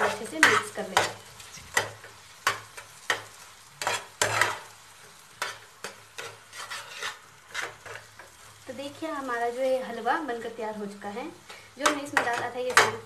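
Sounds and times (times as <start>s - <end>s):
spatula scraping metal pan: 0.0s - 8.4s.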